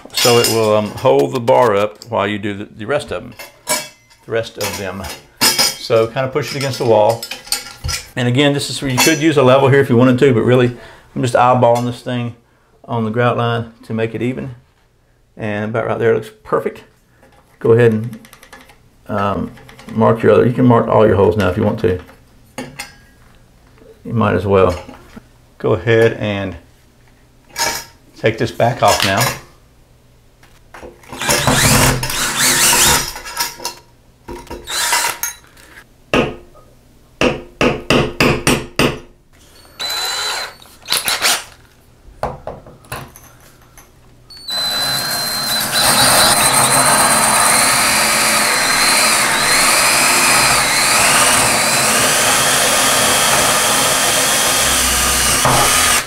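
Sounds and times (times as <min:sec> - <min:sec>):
cordless drill whining: 0:31.2 - 0:33.0, 0:34.7 - 0:35.1, 0:39.6 - 0:41.4, 0:44.4 - 0:56.0.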